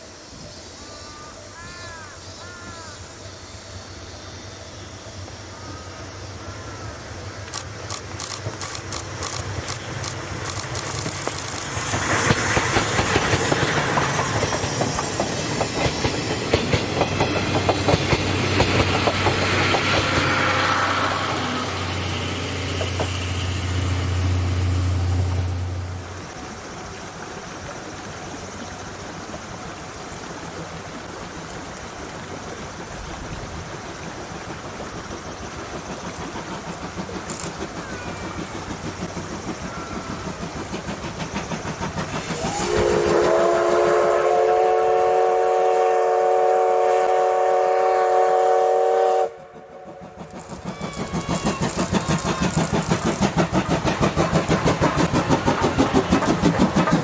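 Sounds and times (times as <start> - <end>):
steam locomotive chuffing: 0.0 - 57.0
wheel clicks over rail joints: 7.4 - 19.9, 36.0 - 39.7, 50.2 - 57.0.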